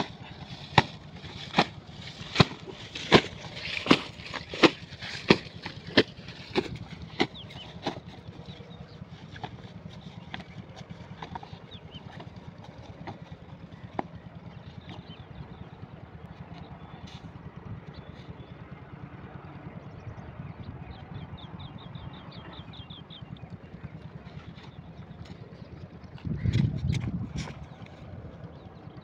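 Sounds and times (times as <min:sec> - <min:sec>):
diesel engine thudding: 0:00.0 - 0:18.1.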